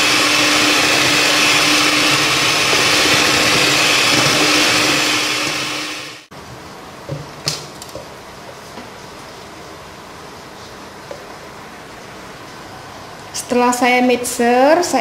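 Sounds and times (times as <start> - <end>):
electric hand mixer running: 0.0 - 6.3.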